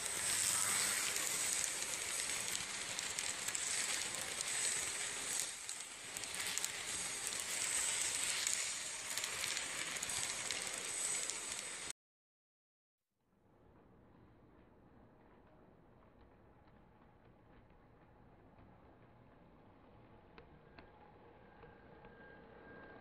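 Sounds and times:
model train wheels rolling hiss: 0.0 - 11.9
steady high whine: 0.0 - 11.9, 19.7 - 23.0.

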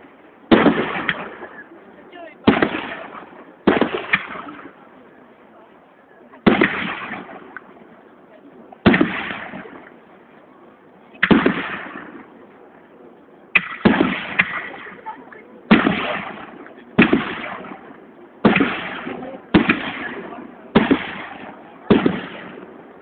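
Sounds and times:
firework shells bursting: 2.4 - 4.8, 15.7 - 23.0.

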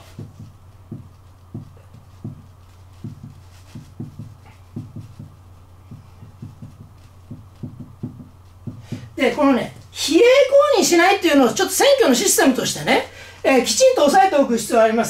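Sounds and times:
marker pen writing on whiteboard: 0.0 - 9.4.

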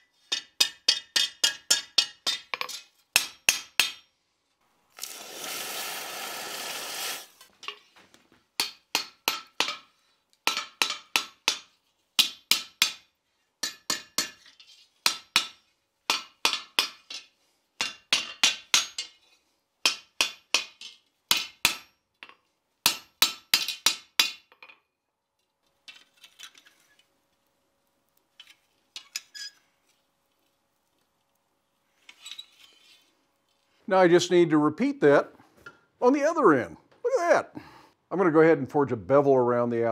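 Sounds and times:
hot steel sizzling in water: 4.9 - 7.5.

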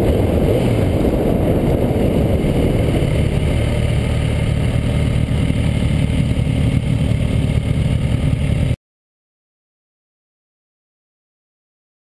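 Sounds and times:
motorcycle engine running: 0.0 - 8.8.

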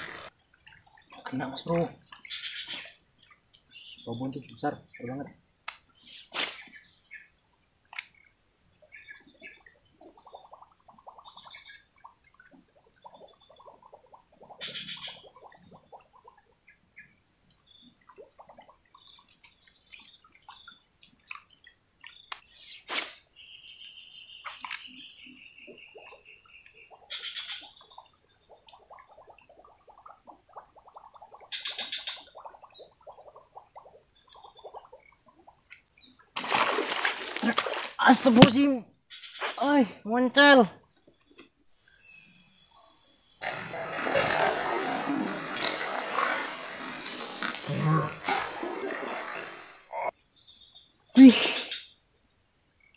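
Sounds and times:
faint bird chirps: 0.0 - 7.4, 8.0 - 36.4, 37.4 - 52.9
bird chirps: 1.1 - 5.3, 18.9 - 28.4, 31.5 - 33.5, 38.0 - 43.7
sharp click: 5.7 - 6.7.

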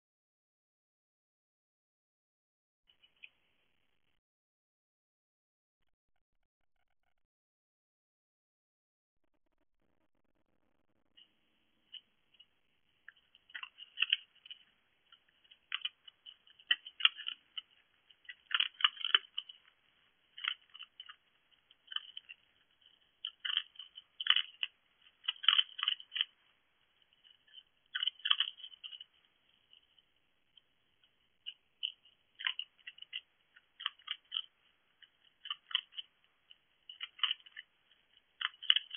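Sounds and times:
fox crunching dry food: 11.9 - 38.9.

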